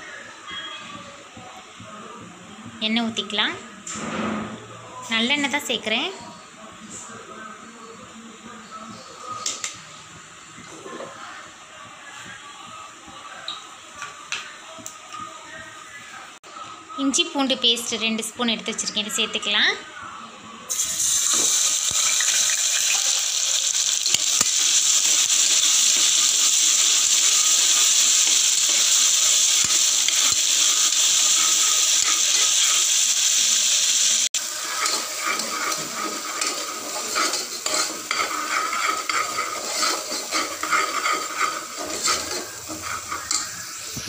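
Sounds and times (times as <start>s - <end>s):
paste sizzling in hot oil: 20.7s - 44.0s
metal spoon scraping pot: 34.7s - 43.6s.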